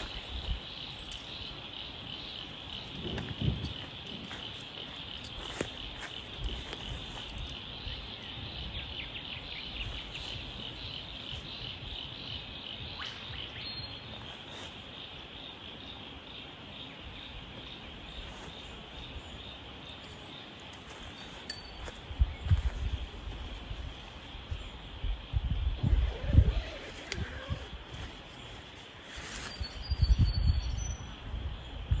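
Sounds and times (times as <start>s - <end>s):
insect chorus trilling: 0.0s - 21.0s.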